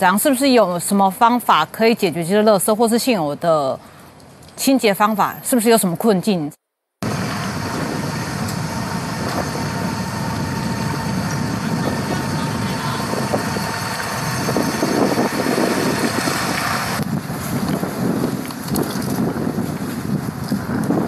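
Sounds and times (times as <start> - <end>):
wind noise: 7.0 - 21.0.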